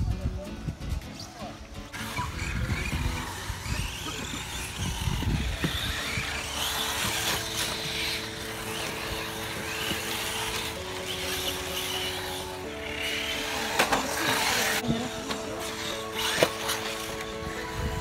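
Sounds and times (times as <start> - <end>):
rc truck motors whining: 1.8 - 18.0
low rumbling: 2.0 - 15.1.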